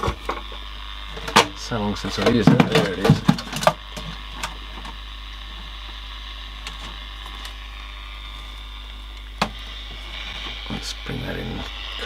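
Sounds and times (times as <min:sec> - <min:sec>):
radio speaker hum and hiss: 0:00.0 - 0:12.0.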